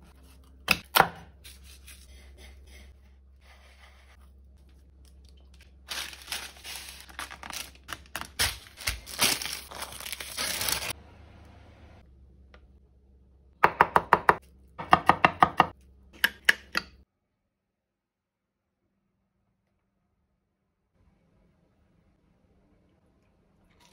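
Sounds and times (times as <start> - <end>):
parchment paper crinkling: 3.5 - 11.0
sharp crisp crackles: 5.3 - 11.0.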